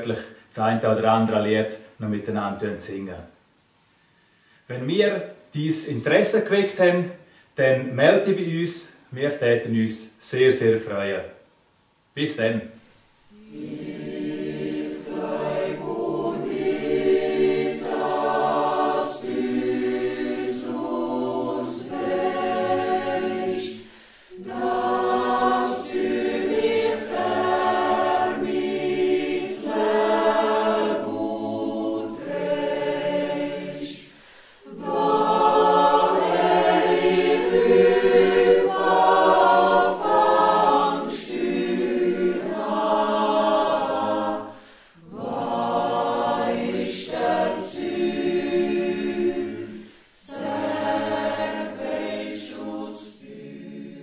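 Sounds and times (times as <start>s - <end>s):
mixed choir singing: 13.3s - 54.0s.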